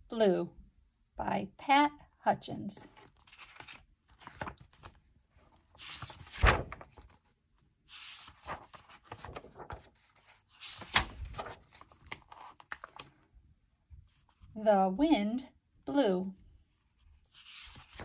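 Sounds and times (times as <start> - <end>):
paper pages rustling: 2.9 - 13.2, 16.8 - 18.0.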